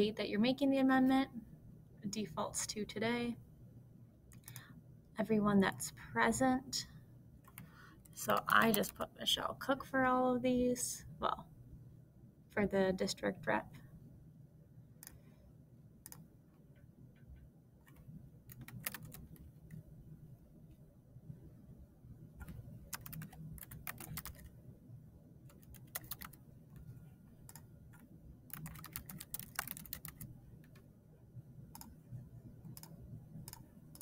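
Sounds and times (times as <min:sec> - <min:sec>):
computer keyboard typing: 0:04.3 - 0:04.7, 0:07.4 - 0:09.1, 0:16.0 - 0:16.2, 0:17.8 - 0:19.8, 0:22.4 - 0:24.5, 0:25.5 - 0:26.4, 0:27.4 - 0:30.9, 0:31.7 - 0:32.0, 0:32.7 - 0:34.0.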